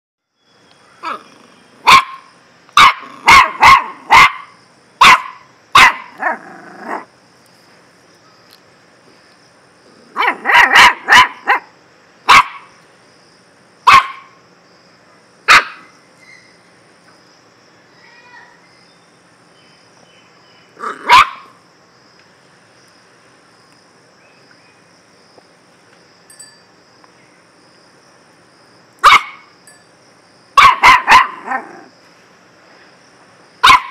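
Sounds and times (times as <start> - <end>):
puppy barking: 1.0 - 7.1, 10.1 - 12.7, 13.9 - 14.4, 15.5 - 15.9, 20.8 - 21.6, 29.0 - 29.5, 30.6 - 31.9, 33.6 - 33.9.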